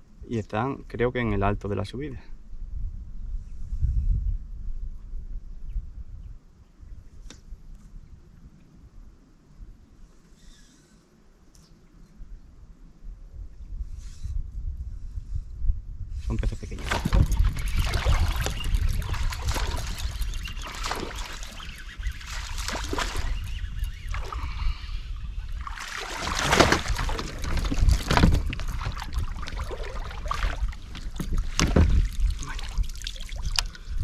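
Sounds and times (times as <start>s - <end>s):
wind rumbling on microphone: 0.0s - 10.6s, 12.0s - 34.0s
water splashing: 16.8s - 24.6s, 25.3s - 33.8s.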